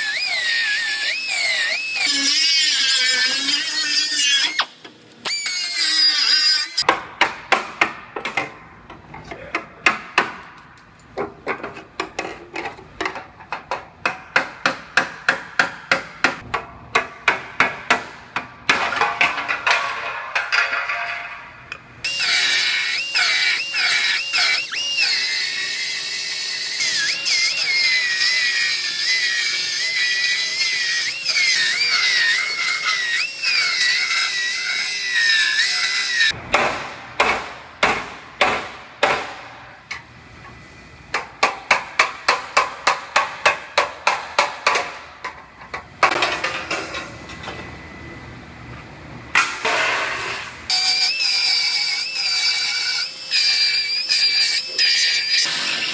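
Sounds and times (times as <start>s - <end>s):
cut-off wheel cutting metal: 22.1s - 36.4s, 49.6s - 55.9s.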